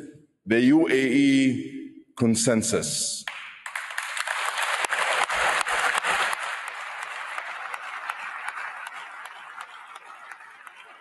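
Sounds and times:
audience applause: 0:03.7 - 0:11.0.

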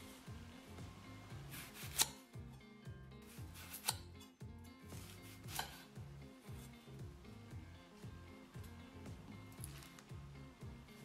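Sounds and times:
background music with steady beat: 0:00.0 - 0:11.0
knife chopping on marble counter: 0:01.5 - 0:02.2, 0:03.5 - 0:04.2, 0:04.9 - 0:05.9.

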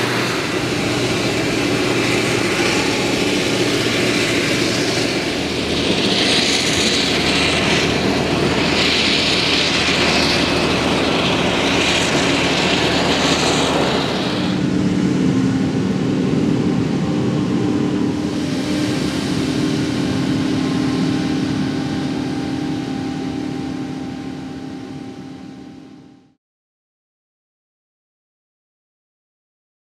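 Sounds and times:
forage harvester chopping with hiss: 0:00.0 - 0:14.6
tractor engine drone: 0:00.0 - 0:26.4.

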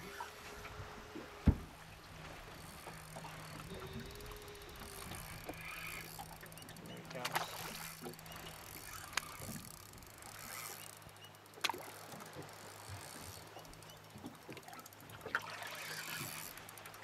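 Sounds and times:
small waves lapping against hull: 0:00.0 - 0:17.0.

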